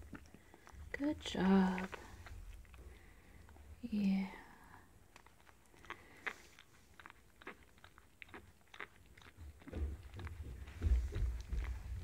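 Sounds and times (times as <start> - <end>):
dog licking: 0.0 - 12.0
low rumbling and bumps: 9.7 - 12.0.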